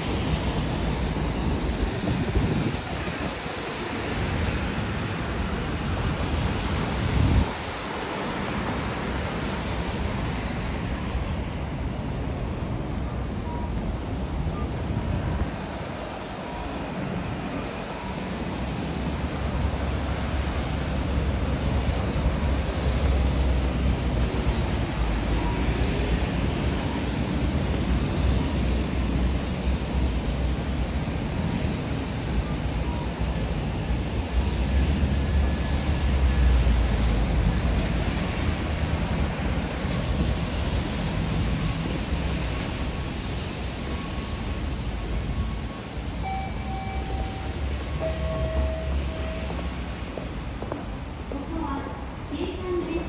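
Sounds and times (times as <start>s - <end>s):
traffic hiss and rumble: 0.0s - 53.0s
wind buffeting the microphone: 0.7s - 3.6s.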